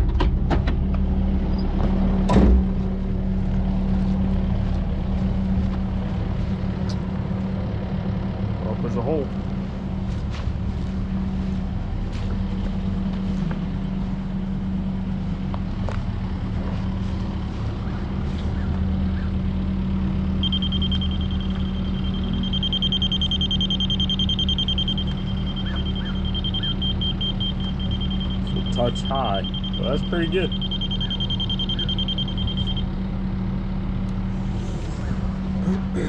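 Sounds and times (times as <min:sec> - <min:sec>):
excavator diesel engine running: 0:00.0 - 0:36.0
high-pitched electronic tone: 0:20.4 - 0:32.9.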